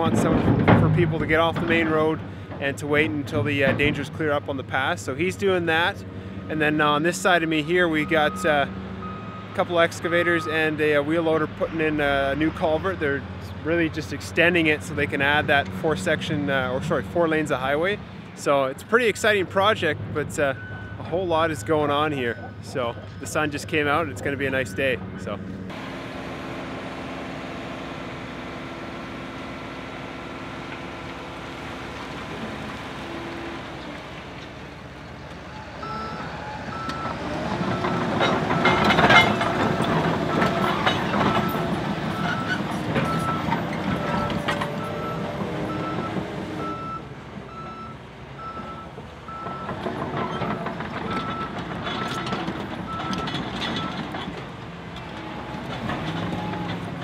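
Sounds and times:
machine knocks and clanks: 0.0s - 2.0s
heavy machinery engine running: 0.0s - 10.2s, 22.4s - 57.0s
reversing alarm beeping: 35.6s - 39.4s, 40.3s - 49.8s, 50.4s - 54.1s.

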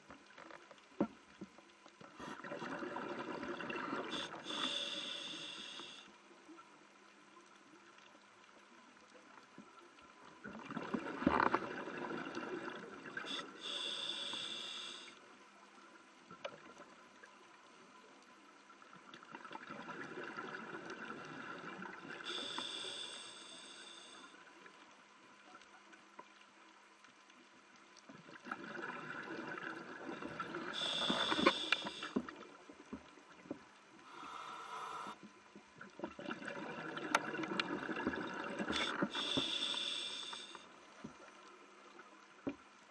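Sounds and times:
regulator hiss: 4.1s - 6.2s, 13.3s - 15.2s, 22.2s - 24.4s, 30.7s - 32.2s, 34.0s - 35.2s, 38.7s - 40.6s.

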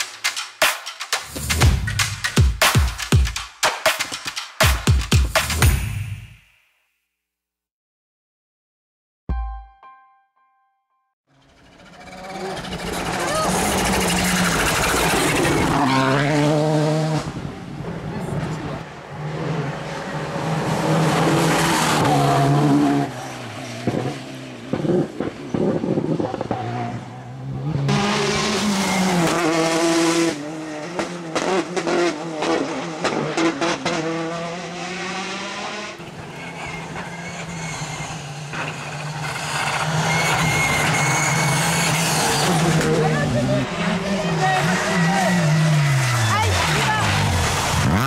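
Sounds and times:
rally car engines revving: 11.3s - 48.0s.

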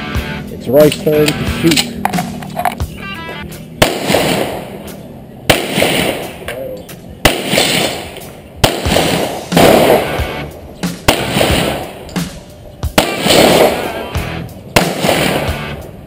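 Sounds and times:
background music: 0.0s - 16.0s
handgun shots: 3.8s - 4.7s, 5.5s - 6.4s, 7.3s - 10.1s, 11.1s - 12.3s, 13.0s - 13.9s, 14.8s - 15.6s.

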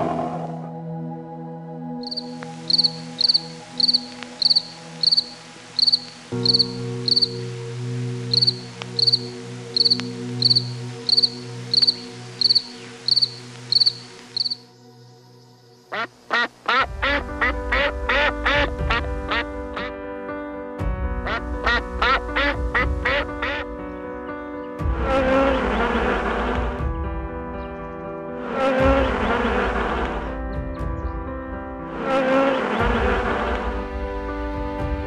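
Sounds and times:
background music chords: 0.0s - 35.0s
high repeated chirps: 2.0s - 7.4s, 8.3s - 14.6s.

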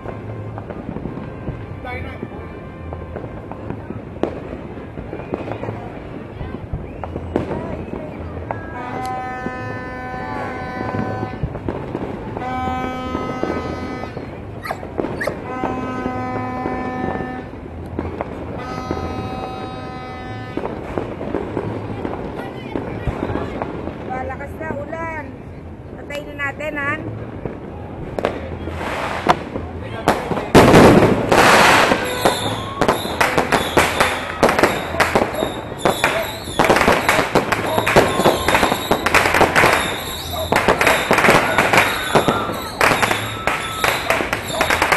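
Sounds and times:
firecracker pops: 0.0s - 24.1s, 27.2s - 44.9s
horn blasts: 8.6s - 11.5s, 12.4s - 14.4s, 15.4s - 17.6s, 18.6s - 20.8s.

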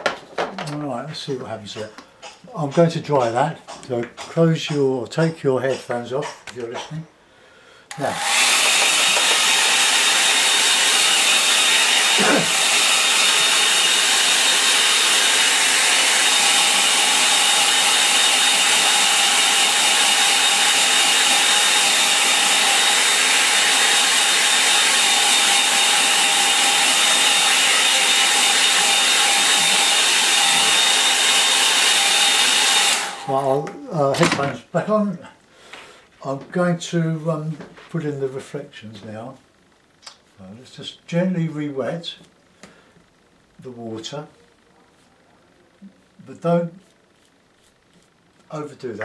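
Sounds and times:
hair dryer blowing: 7.9s - 33.7s.

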